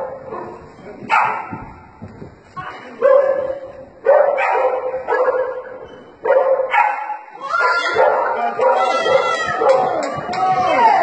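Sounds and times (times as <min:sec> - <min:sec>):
dog barking: 0:00.0 - 0:01.6, 0:03.0 - 0:09.9.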